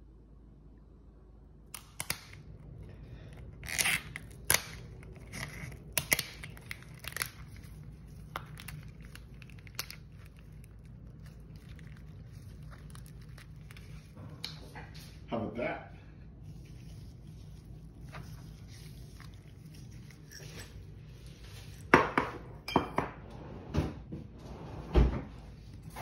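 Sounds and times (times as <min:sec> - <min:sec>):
lobster shell cracking: 0:01.7 - 0:14.6
plastic gloves crinkling: 0:01.7 - 0:15.3, 0:16.2 - 0:22.1.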